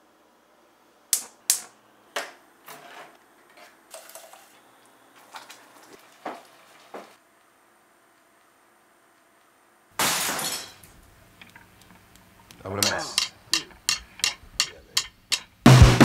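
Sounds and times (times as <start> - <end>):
food pouring into a saucepan: 3.9 - 4.6.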